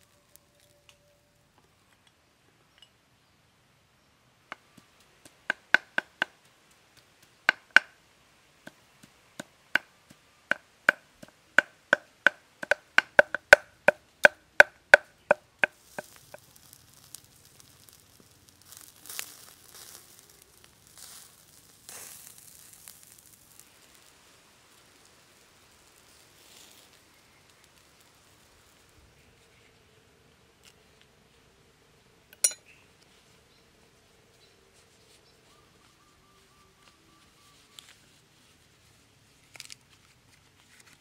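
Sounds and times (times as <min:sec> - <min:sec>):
chicken grilling over charcoal: 0:00.0 - 0:01.0, 0:11.6 - 0:31.6
cleaver chopping on wooden block: 0:05.5 - 0:06.4, 0:10.5 - 0:15.4.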